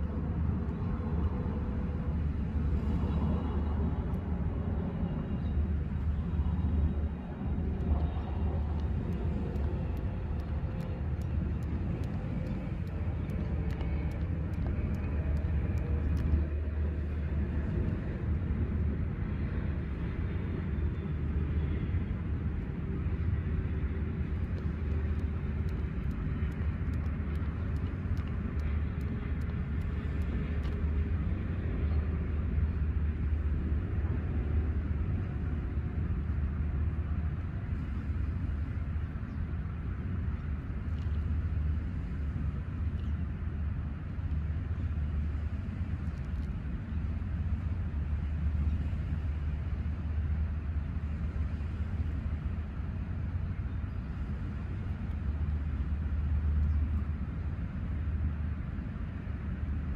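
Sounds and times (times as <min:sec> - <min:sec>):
faint hum: 0:00.0 - 0:59.9
low outdoor rumble: 0:00.0 - 0:59.9
faint clicks: 0:07.5 - 0:18.0, 0:24.3 - 0:32.0, 0:40.4 - 0:43.2.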